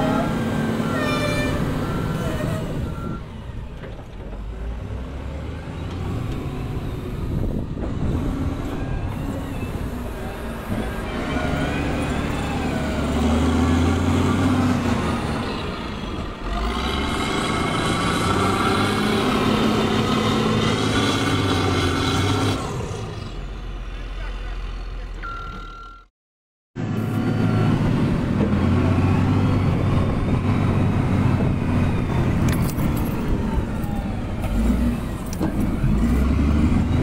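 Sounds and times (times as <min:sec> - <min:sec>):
wheel loader diesel engine: 0:00.0 - 0:26.1, 0:26.8 - 0:37.0.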